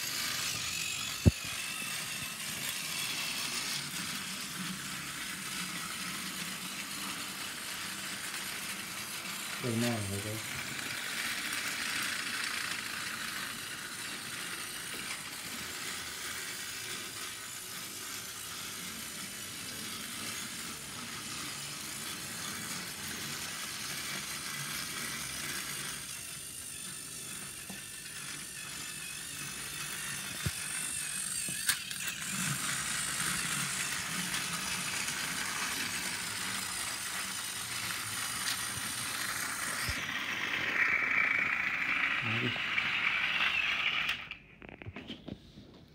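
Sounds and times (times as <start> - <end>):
toy train motor whirring: 0.0 - 44.8.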